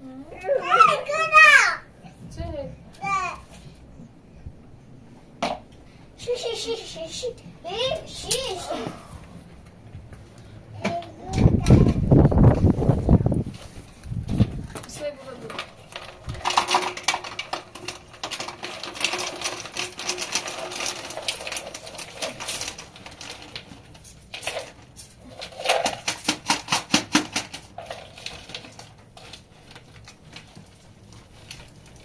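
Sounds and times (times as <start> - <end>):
plastic bag crinkling: 15.3 - 32.0
plastic bowl clicking on metal pans: 25.6 - 27.8.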